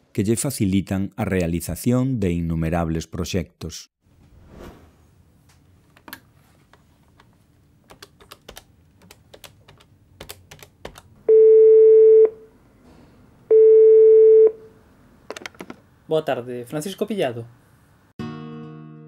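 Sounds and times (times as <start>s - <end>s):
telephone ringing tone beeps: 11.3s - 12.4s, 13.5s - 14.6s.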